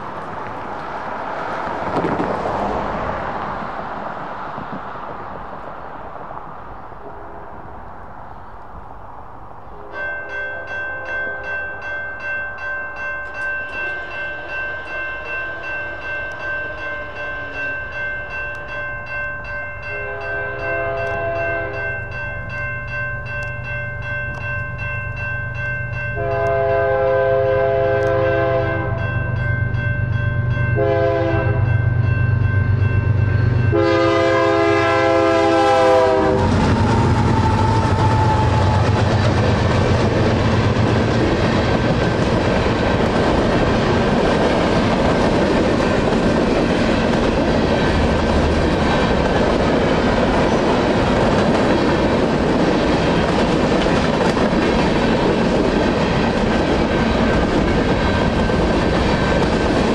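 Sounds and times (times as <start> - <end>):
locomotive horn blasts: 7.0 - 7.6, 9.7 - 11.6, 19.9 - 22.0, 26.2 - 29.0, 30.8 - 31.8, 33.7 - 38.9
crossing bells ringing: 9.6 - 59.9.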